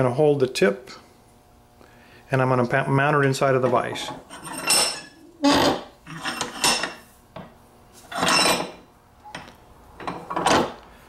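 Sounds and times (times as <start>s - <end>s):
metal scraping against metal: 3.8s - 7.0s, 8.0s - 8.9s.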